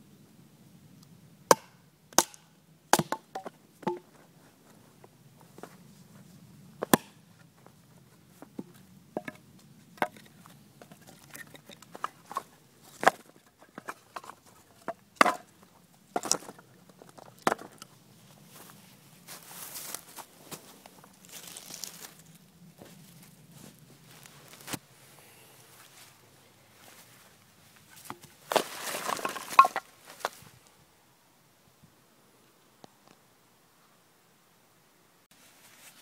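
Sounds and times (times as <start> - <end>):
knife chopping into wooden log: 1.5 - 2.4, 3.0 - 4.0, 6.8 - 7.2.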